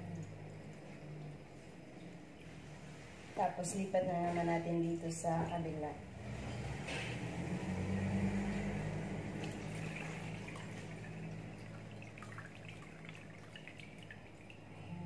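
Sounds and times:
juice pouring into a plastic tub: 8.3s - 14.7s.

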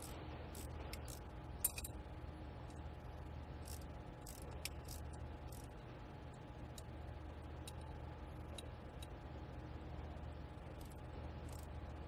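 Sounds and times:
steady low hum: 0.0s - 12.0s
socket wrench metallic ticks: 0.6s - 2.0s, 7.6s - 9.2s.

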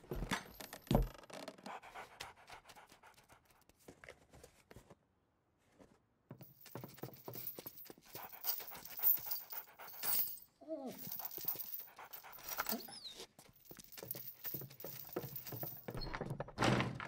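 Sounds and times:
dog panting: 1.6s - 3.7s, 7.3s - 10.4s, 11.0s - 15.9s.

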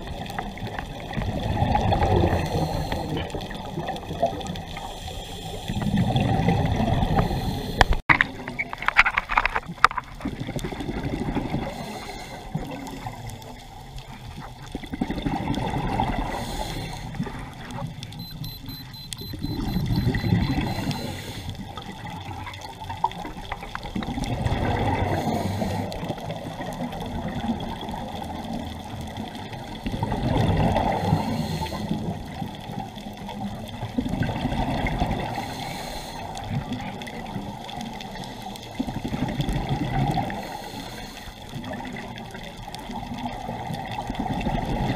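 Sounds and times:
underwater exhaled bubbles: 0.0s - 18.2s, 19.4s - 44.9s
diver breathing through regulator: 2.1s - 3.4s, 4.8s - 6.2s, 7.1s - 8.0s, 11.6s - 12.6s, 16.2s - 17.2s, 19.7s - 21.6s, 25.0s - 26.0s, 30.9s - 32.0s, 35.3s - 36.5s, 40.3s - 41.4s.

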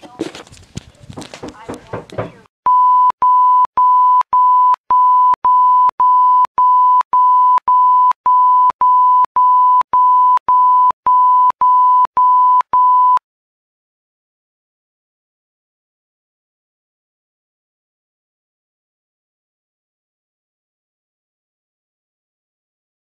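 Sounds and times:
censor beeps: 2.7s - 13.2s.

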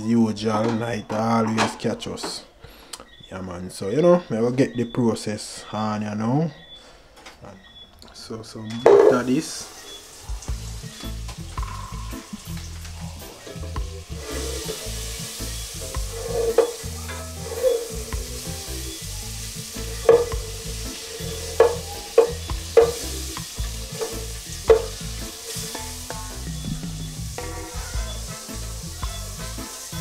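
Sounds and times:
butter sizzling in a pot: 9.1s - 30.0s
spatula scraping a pot: 11.6s - 26.6s.

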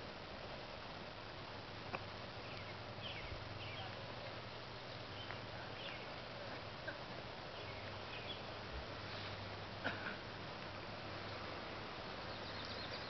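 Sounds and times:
steady background hiss: 0.0s - 13.0s
small birds chirping: 1.8s - 9.8s, 11.0s - 13.0s.

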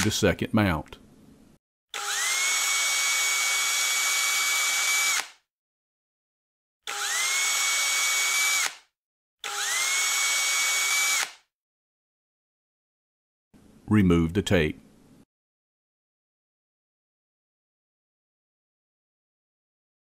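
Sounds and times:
cordless drill whining: 1.9s - 5.4s, 6.8s - 11.4s
drill bit cutting plastic: 1.9s - 5.4s, 6.8s - 11.4s.

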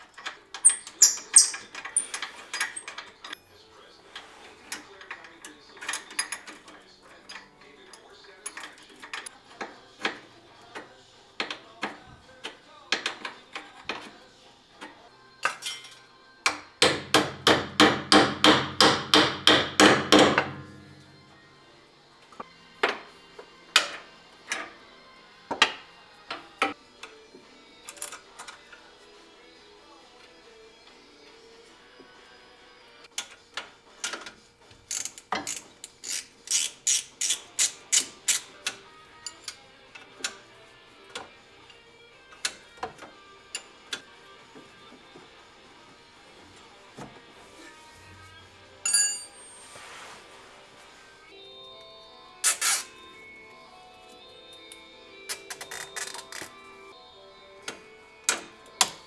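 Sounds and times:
wrench clicking on metal fitting: 34.9s - 39.6s.

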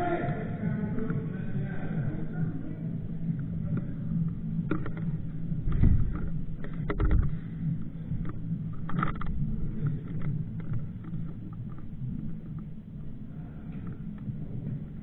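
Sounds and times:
heavy low thumps: 0.0s - 15.0s
steady low hum: 0.0s - 15.0s
gear clicks and knocks: 3.3s - 14.9s.

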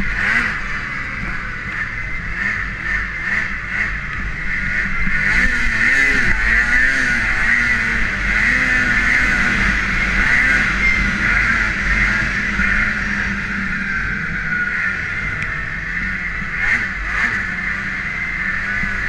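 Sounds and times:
snowmobile engine running: 0.0s - 19.0s.

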